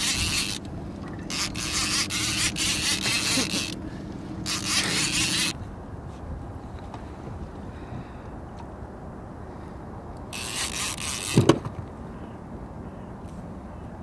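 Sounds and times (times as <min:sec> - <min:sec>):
fishing reel running: 0:00.0 - 0:03.8, 0:04.4 - 0:05.6, 0:10.3 - 0:11.4
steady low hum: 0:00.0 - 0:14.0.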